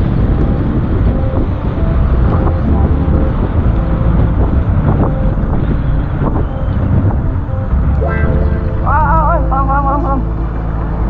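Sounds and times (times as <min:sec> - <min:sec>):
wind on microphone: 0:00.0 - 0:11.0.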